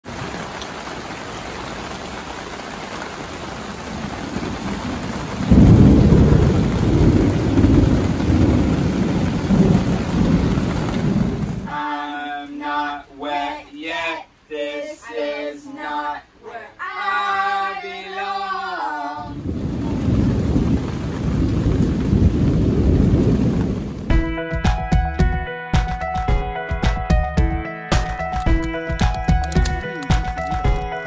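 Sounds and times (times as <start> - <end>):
rain on a canopy: 0.0 - 12.6, 18.8 - 24.1, 28.6 - 31.0
low rumble of thunder: 4.3 - 11.7, 19.4 - 24.1
voices singing: 11.7 - 19.6.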